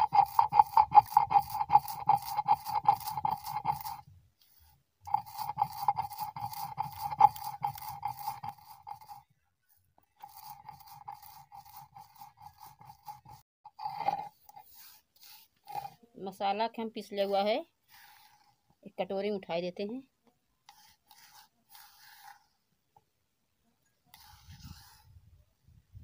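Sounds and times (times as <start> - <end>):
stone grinding scrape: 0.0 - 9.3, 10.2 - 16.0, 20.7 - 22.5, 24.2 - 25.1.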